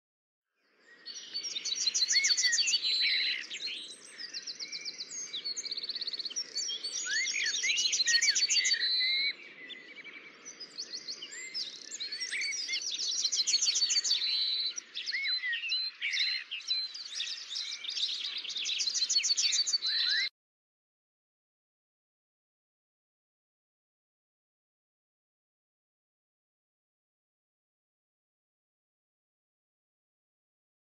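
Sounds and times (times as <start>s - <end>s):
songbirds singing: 0.6s - 20.3s.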